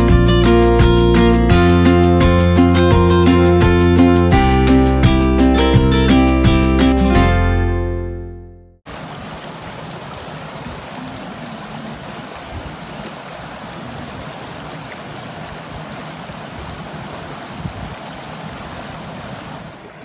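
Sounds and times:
stream running over stones: 8.9 - 20.0.

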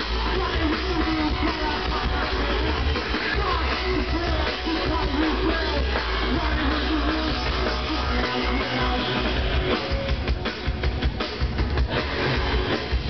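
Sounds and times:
live rock band playing loud: 0.0 - 13.0.

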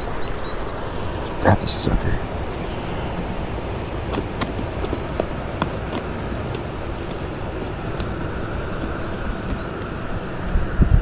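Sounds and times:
wind buffeting microphone: 1.0 - 11.0.

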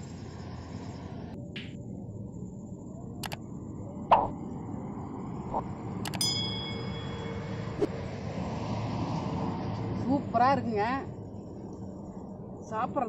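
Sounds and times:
low hum: 0.0 - 10.0
sharp clicks: 6.0 - 6.2
bell-like ding: 6.1 - 7.8.

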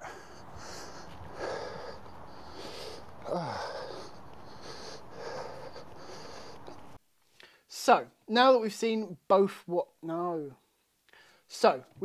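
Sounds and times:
man breathing: 0.0 - 7.7, 11.1 - 11.5.

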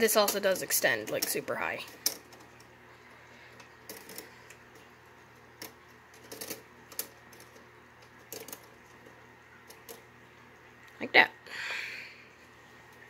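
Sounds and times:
plastic parts clicking: 5.6 - 9.0.

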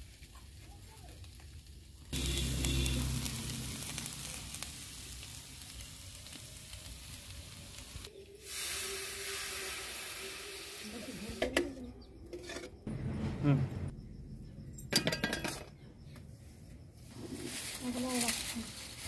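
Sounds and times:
fish sizzling in a pan: 1.1 - 11.4
water pouring into hot pan: 2.1 - 11.0.

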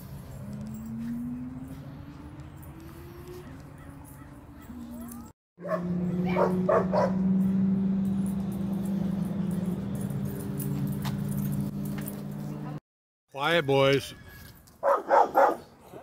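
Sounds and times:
dog barking: 3.4 - 7.2, 14.8 - 15.7.

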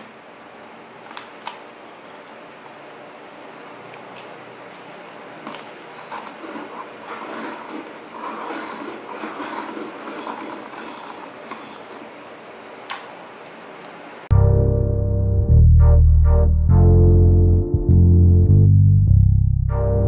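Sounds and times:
pencil sharpener grinding: 6.0 - 12.2.

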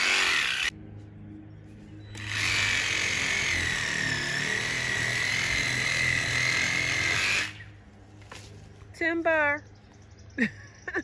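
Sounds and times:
electric saw whining: 0.0 - 0.7, 2.1 - 7.8.

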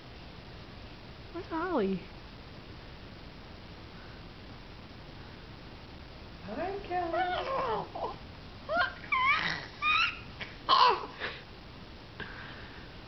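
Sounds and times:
baby laughing and cooing: 7.2 - 11.4.

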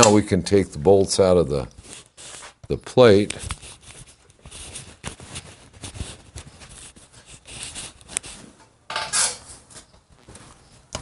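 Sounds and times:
metal scrape: 7.1 - 9.8.

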